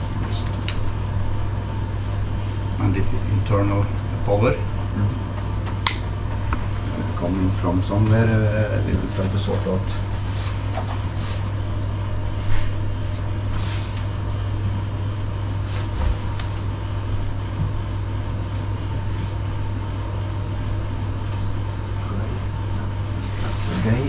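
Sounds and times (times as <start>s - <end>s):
low machinery hum: 0.0s - 24.0s.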